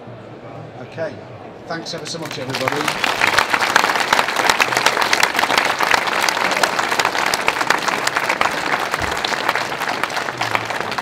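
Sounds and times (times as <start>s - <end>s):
audience applauding: 1.9s - 11.0s.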